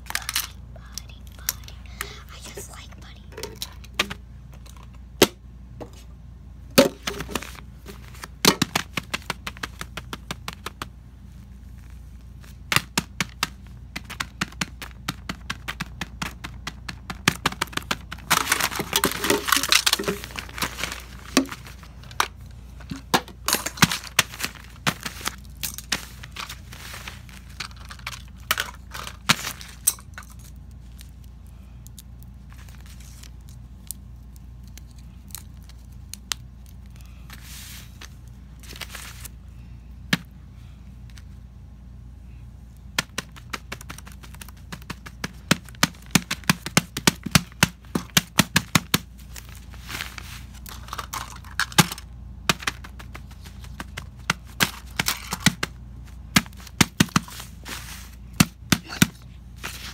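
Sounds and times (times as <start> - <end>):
plastic toys clicking and tapping: 0.0 - 2.1, 12.7 - 26.0, 27.5 - 31.1, 50.7 - 57.4
paper crinkling: 13.4 - 39.3, 49.1 - 58.3.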